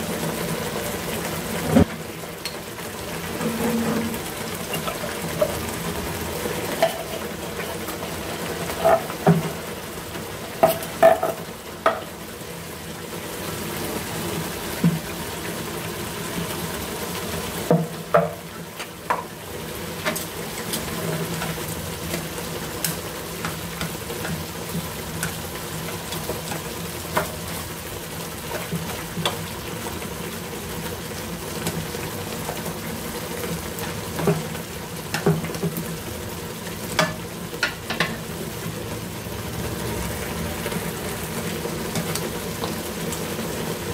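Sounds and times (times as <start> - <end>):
sauce simmering in frying pan: 0.0 - 43.9
food dropping into pan: 10.6 - 12.1.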